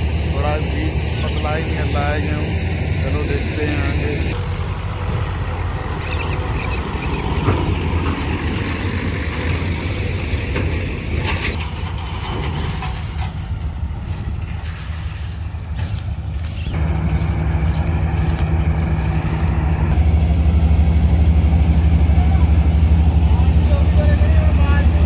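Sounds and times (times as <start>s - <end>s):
combine harvester running: 0.0s - 25.0s
machinery clatters: 6.6s - 20.6s.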